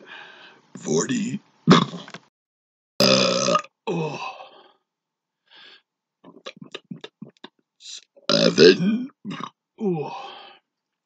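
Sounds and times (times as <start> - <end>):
man burping speech: 3.0 - 4.3, 8.3 - 10.2.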